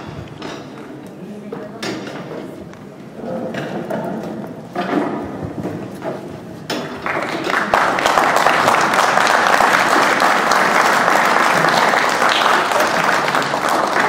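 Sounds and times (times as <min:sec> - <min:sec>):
audience applauding: 0:06.9 - 0:14.0.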